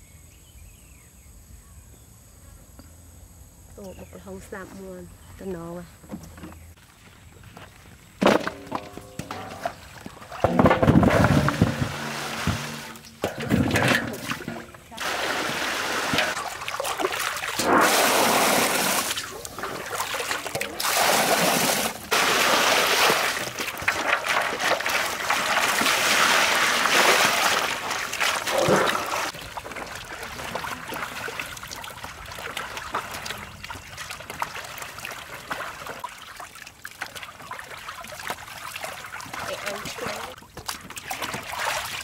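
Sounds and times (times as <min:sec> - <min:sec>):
water pouring and splashing: 0:08.7 - 0:42.0
water trickling: 0:29.1 - 0:42.0.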